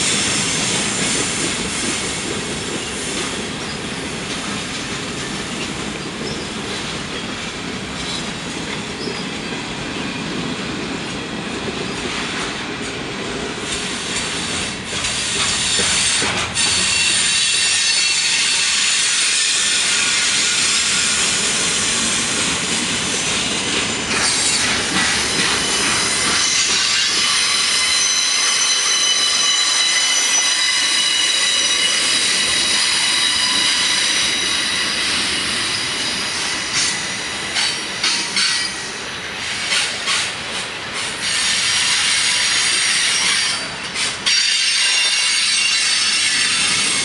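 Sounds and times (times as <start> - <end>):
wheels squealing against rails: 0.0 - 10.4, 13.7 - 47.0
freight train rumbling past: 0.0 - 47.0
wheels clicking over rail joints: 23.7 - 27.4.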